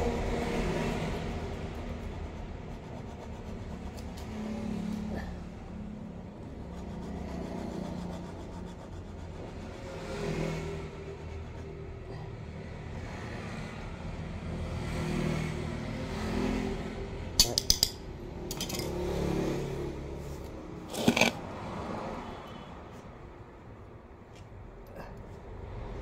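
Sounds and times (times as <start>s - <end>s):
hands scraping soil: 20.9s - 21.4s.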